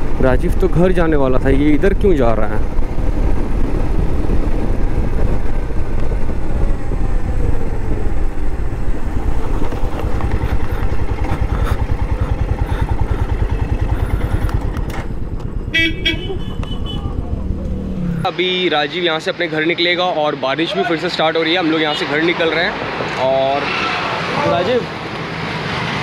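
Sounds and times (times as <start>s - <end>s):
wind rushing: 0.0s - 18.3s
motorcycle engines running: 0.0s - 20.0s.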